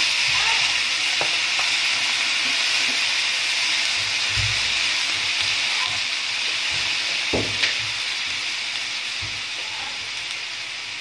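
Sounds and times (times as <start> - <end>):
chicken sizzling in a pan: 0.0 - 11.0
wooden spoon knocking a pan: 6.7 - 7.9.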